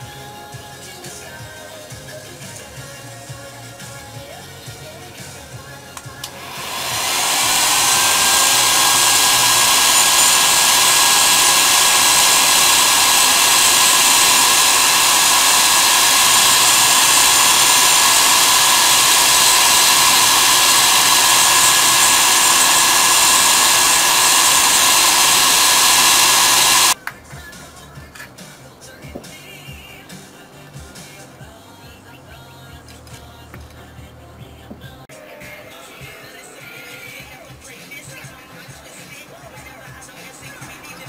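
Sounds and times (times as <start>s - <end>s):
heat gun blowing air with whine: 6.2s - 27.0s.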